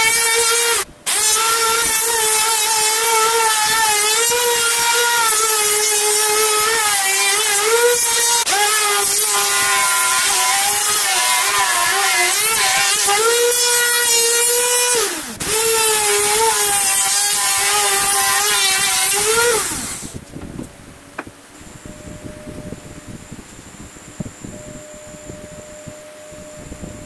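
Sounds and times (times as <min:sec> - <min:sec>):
router cutting wood: 0:00.0 - 0:20.2.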